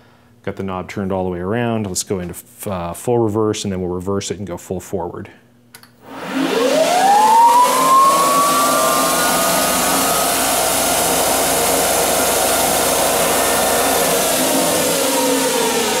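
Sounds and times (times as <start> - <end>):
lathe motor whining: 6.0 - 16.0.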